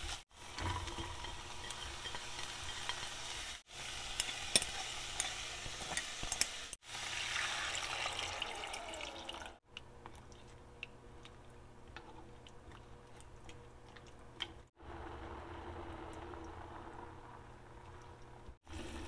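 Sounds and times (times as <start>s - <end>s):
spoon stirring against pot: 0.4s - 6.7s, 9.7s - 14.7s
water pouring into pot: 6.8s - 9.6s.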